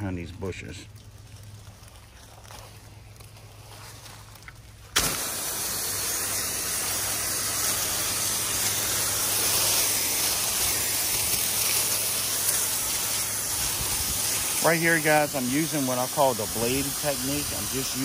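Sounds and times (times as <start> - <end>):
pressure washer water jet hissing: 5.0 - 18.0.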